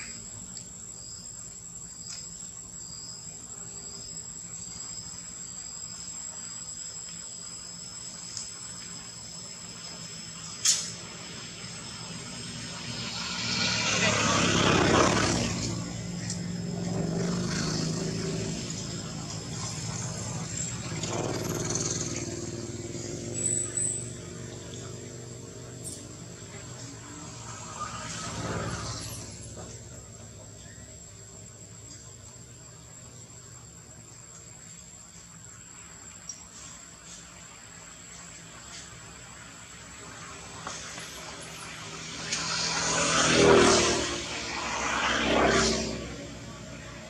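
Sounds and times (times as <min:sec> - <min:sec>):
insects chirring: 0:00.0 - 0:47.0
vehicle engine humming: 0:11.0 - 0:33.4.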